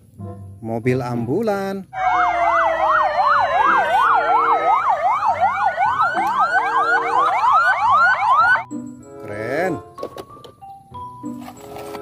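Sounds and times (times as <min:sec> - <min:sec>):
ambulance sirens yelping and wailing: 0:02.0 - 0:08.8.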